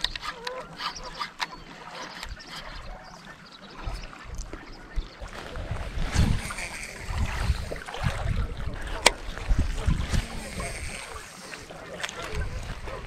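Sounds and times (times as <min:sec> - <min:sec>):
fishing reel clicks: 0:00.0 - 0:01.6, 0:06.1 - 0:07.8, 0:09.0 - 0:12.4
small waves lapping: 0:00.0 - 0:13.0
wind buffeting microphone: 0:03.7 - 0:13.0.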